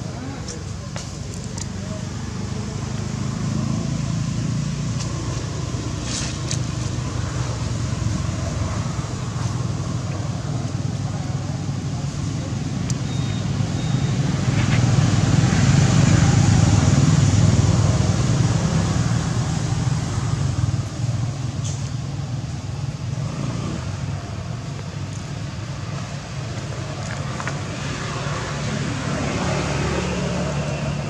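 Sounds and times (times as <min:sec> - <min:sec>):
road traffic rumble: 0:00.0 - 0:31.0
vehicle passing: 0:26.8 - 0:31.0.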